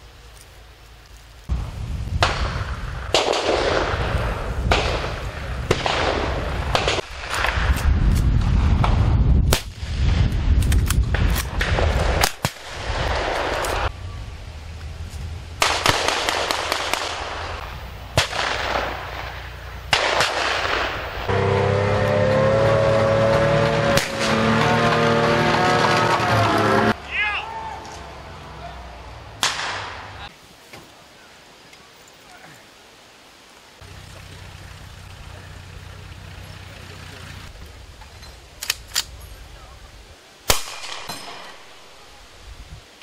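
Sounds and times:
explosive bangs: 0:02.1 - 0:13.9, 0:15.6 - 0:21.4, 0:23.3 - 0:27.0, 0:29.4 - 0:30.3
blank gunfire: 0:19.9 - 0:21.0.

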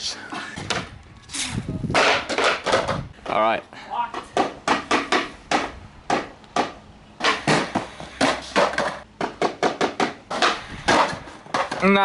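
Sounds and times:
skateboard knocking on concrete: 0:01.9 - 0:03.4, 0:04.1 - 0:12.0.

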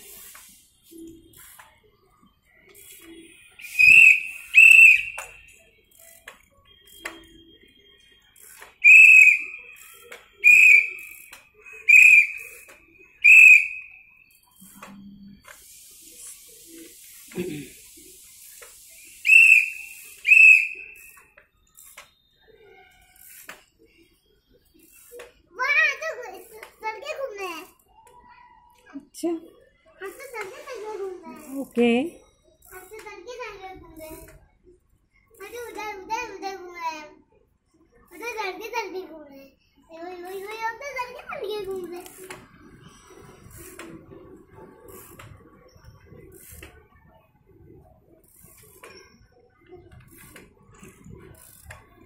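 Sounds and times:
shrill toy whistle blasts: 0:02.7 - 0:16.2, 0:18.8 - 0:23.1.

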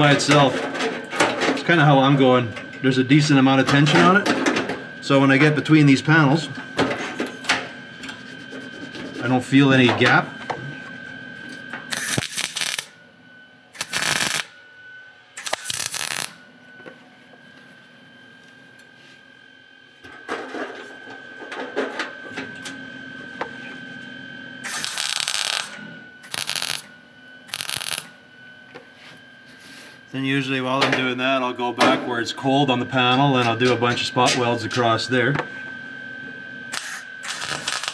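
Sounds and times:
short welding bursts: 0:11.9 - 0:12.9, 0:13.8 - 0:14.5, 0:15.4 - 0:16.4, 0:24.6 - 0:26.9, 0:27.5 - 0:28.1, 0:36.7 - 0:37.9.

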